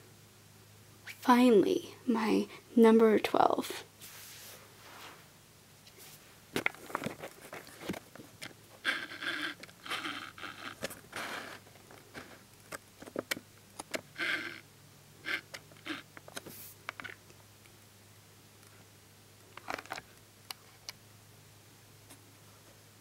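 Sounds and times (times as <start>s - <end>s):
soft handling rustling: 4.0s - 8.6s.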